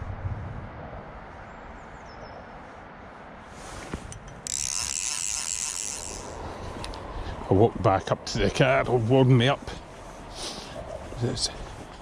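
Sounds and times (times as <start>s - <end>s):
fly reel ratchet clicking: 4.1s - 7.0s.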